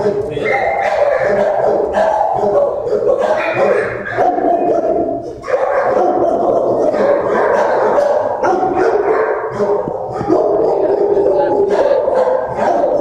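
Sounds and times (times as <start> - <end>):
dogs barking: 0.0 - 13.0.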